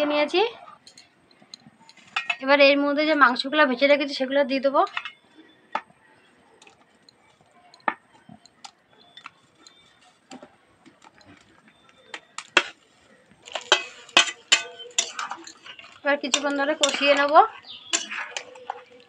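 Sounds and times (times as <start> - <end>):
metal spatula clinking on bowl: 0.8 - 2.4, 13.5 - 19.0.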